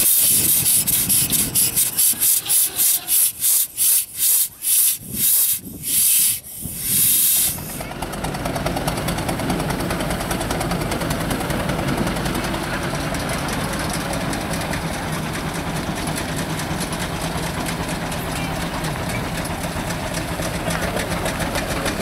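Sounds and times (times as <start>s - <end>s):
steam engine exhaust chuffing: 0.0s - 22.0s.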